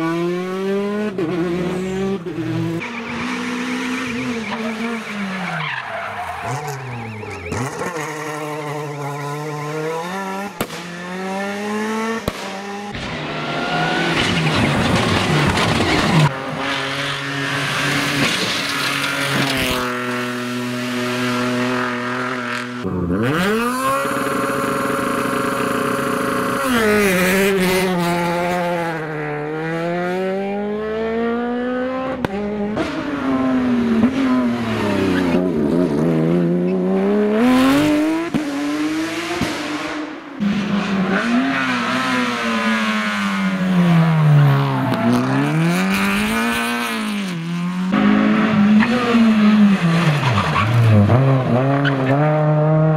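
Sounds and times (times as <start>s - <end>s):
rally car engines revving: 0.0s - 52.9s
tires squealing: 2.7s - 10.3s, 12.9s - 20.3s, 47.9s - 52.3s.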